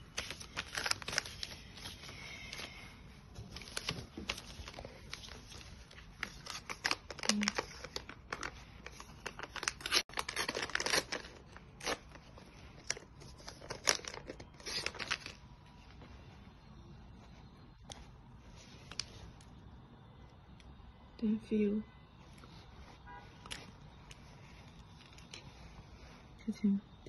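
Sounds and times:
pouches crinkling and tearing: 0.0 - 2.8, 3.4 - 15.5, 23.3 - 26.1.

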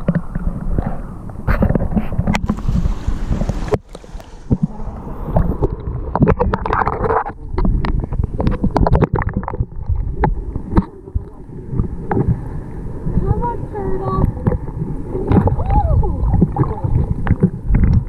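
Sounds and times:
underwater clicks and pops: 0.0 - 11.4, 16.3 - 18.0
muffled underwater rumble: 0.0 - 18.0
surf hiss: 0.2 - 5.8.

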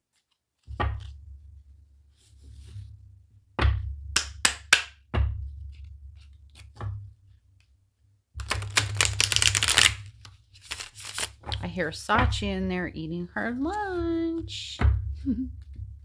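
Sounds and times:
cards snapping: 8.4 - 11.4
cards riffling: 8.4 - 11.5.

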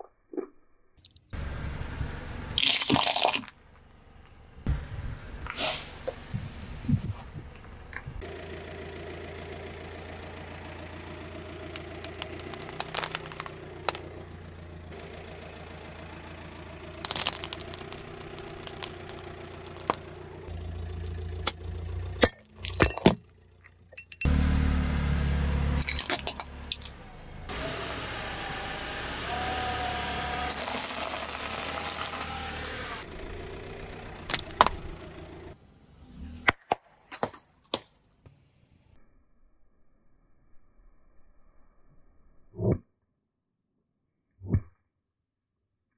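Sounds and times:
car engine idling: 1.3 - 2.6, 6.2 - 35.7
objects crunching under a tyre: 11.6 - 14.1, 16.9 - 21.2, 25.8 - 27.0, 30.2 - 32.5, 34.3 - 35.0.

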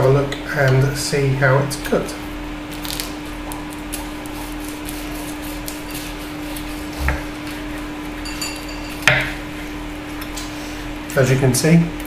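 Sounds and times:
steady low hum: 0.0 - 11.1
knife sawing through roast meat: 4.2 - 7.5.

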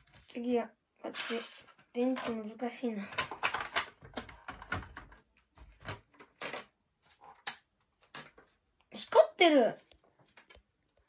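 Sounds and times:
plastic clicks and clacks: 1.2 - 6.7.

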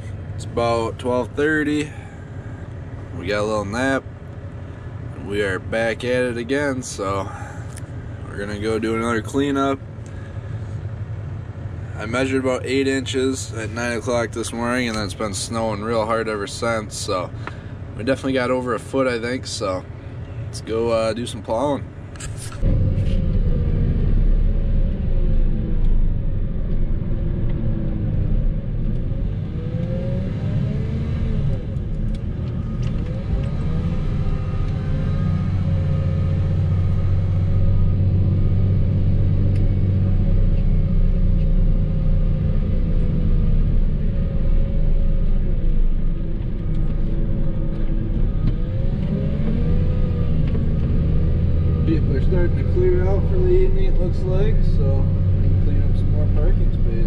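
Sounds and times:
vehicle engine revving: 22.1 - 57.0.

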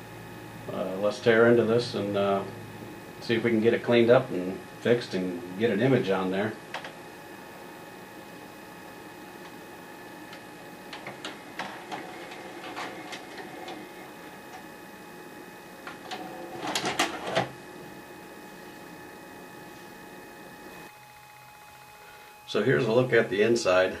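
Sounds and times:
faint hum: 0.0 - 24.0
tape mechanism clicking and clunking: 15.8 - 17.5
cassette ejecting clatter: 15.9 - 17.6.

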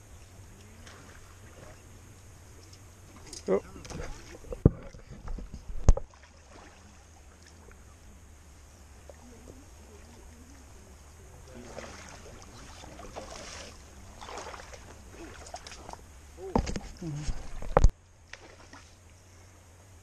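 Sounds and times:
water splashing and sloshing: 0.0 - 19.3
wind rumbling on microphone: 3.7 - 6.1.

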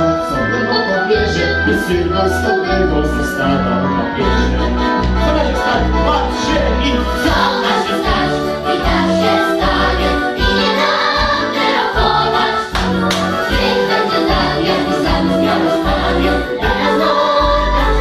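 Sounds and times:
instrumental accompaniment: 0.0 - 18.0
children's choir singing: 7.2 - 18.0.

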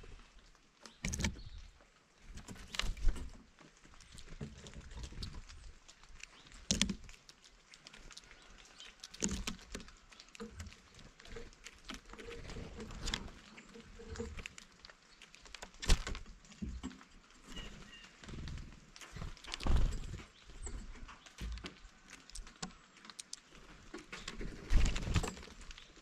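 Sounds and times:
birds tapping on feeder: 6.3 - 7.1, 8.0 - 13.4.

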